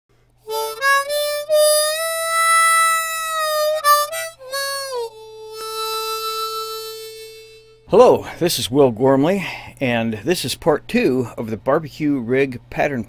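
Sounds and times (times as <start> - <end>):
solo harmonica melody: 0.4 - 7.9.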